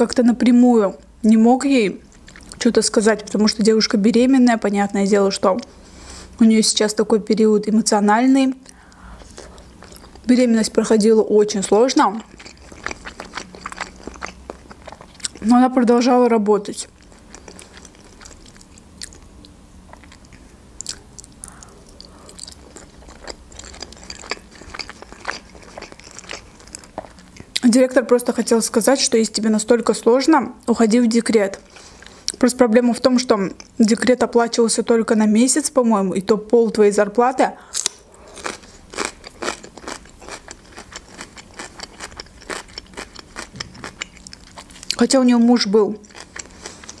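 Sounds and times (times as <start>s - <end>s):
person chewing food: 2.1s - 2.6s, 8.6s - 10.3s, 12.0s - 15.5s, 16.8s - 27.6s, 37.8s - 45.0s, 46.0s - 47.0s.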